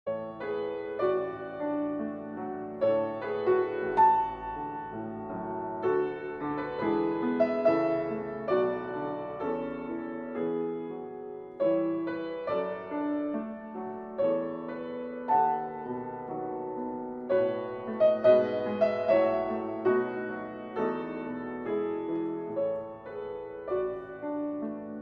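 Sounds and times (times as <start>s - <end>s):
gentle piano music: 0.1s - 25.0s.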